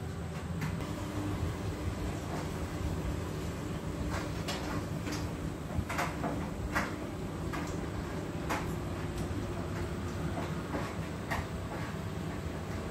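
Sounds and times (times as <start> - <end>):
steady low hum: 0.0 - 12.9.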